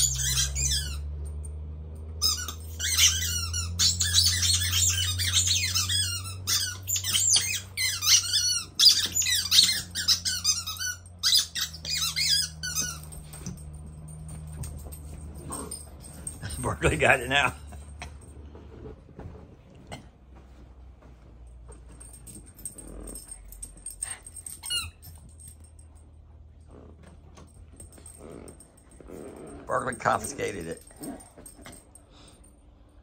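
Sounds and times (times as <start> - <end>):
squeaky dog toy squeaking: 0.0 - 1.4, 2.2 - 13.6, 23.9 - 25.4
low steady hum: 0.0 - 33.0.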